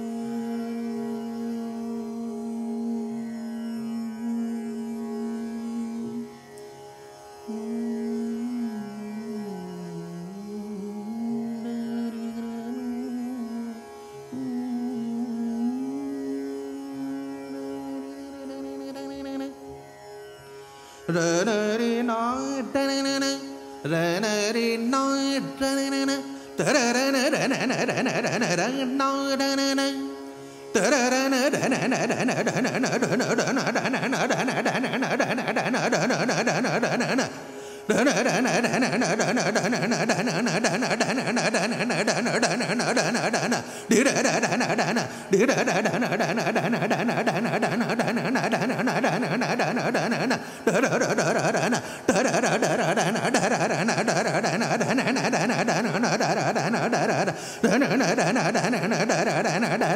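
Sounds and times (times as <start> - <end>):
tanpura drone: 0.0 - 59.9
man singing: 8.4 - 16.2, 21.1 - 30.1, 30.8 - 59.9.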